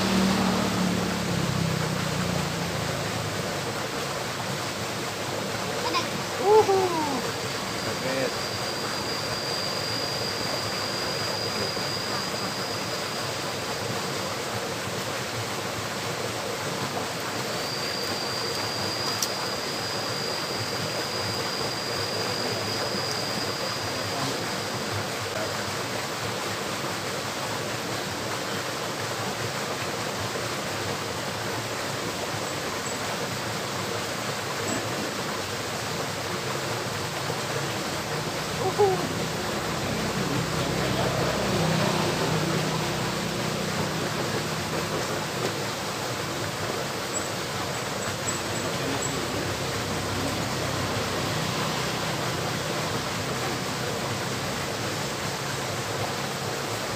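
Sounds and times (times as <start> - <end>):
stream water flowing: 0.0 - 56.9
thin high whine: 5.3 - 14.0, 17.1 - 25.4, 37.0 - 54.0.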